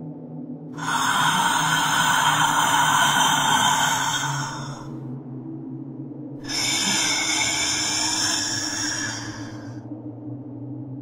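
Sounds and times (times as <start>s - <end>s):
low drone: 0.0s - 11.0s
ghostly female vocals: 0.7s - 5.2s, 6.4s - 9.9s.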